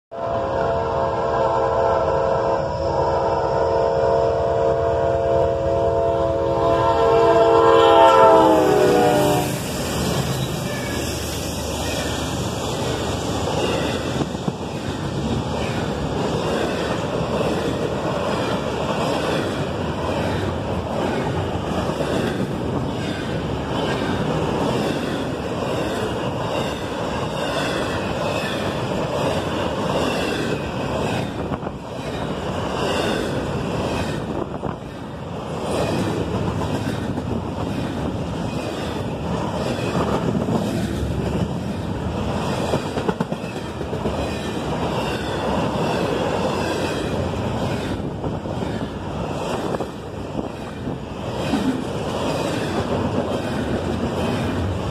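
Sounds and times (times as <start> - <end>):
freight train wheels rumbling: 0.1 - 54.9.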